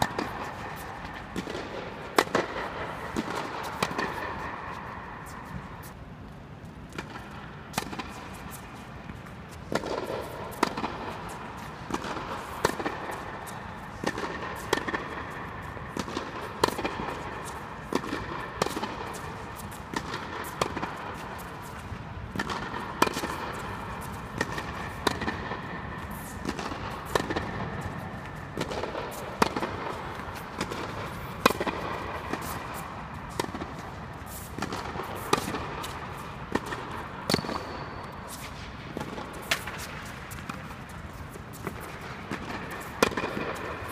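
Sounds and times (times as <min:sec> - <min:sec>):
rackets striking tennis ball: 0:00.0 - 0:43.9
ball bouncing on court: 0:22.3 - 0:34.0, 0:34.6 - 0:40.8, 0:41.6 - 0:43.9.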